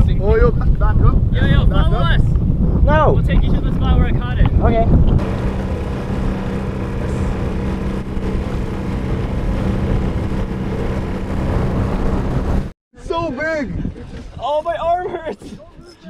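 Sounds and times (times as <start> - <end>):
wind: 0.0 - 16.0
motorboat engine running: 5.1 - 12.7
rushing water: 5.2 - 12.7.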